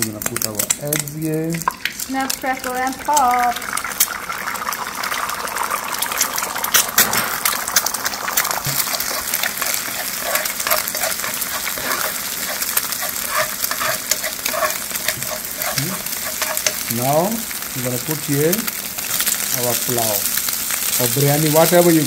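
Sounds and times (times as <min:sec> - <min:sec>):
eggs sizzling and popping in oil: 0:00.0 - 0:22.0
metal spoon scraping a pan: 0:06.7 - 0:18.4.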